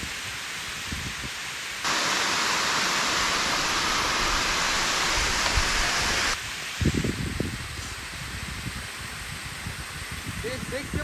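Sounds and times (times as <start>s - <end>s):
water rushing down spillway: 0.0s - 11.0s.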